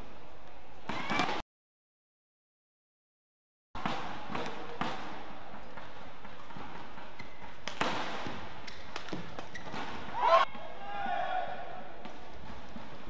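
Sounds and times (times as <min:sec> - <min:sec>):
rackets striking shuttlecock: 0:05.7 - 0:10.2
arena crowd noise: 0:10.1 - 0:12.3.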